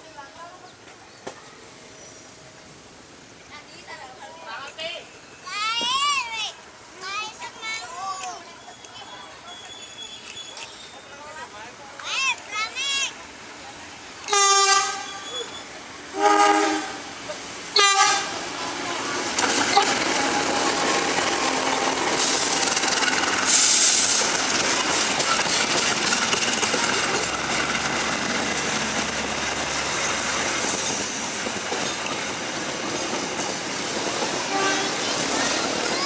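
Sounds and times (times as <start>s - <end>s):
locomotive horn blast: 14.3s - 15.5s, 16.1s - 17.1s, 17.8s - 18.5s, 19.7s - 21.7s, 34.5s - 35.0s
train wheels clattering on rails: 19.1s - 36.0s.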